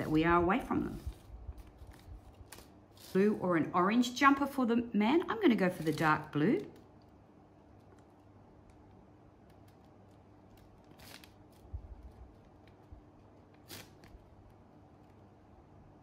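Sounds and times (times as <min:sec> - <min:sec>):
soft scratchy rustles: 0:00.0 - 0:03.6
faint room hum: 0:00.0 - 0:16.0.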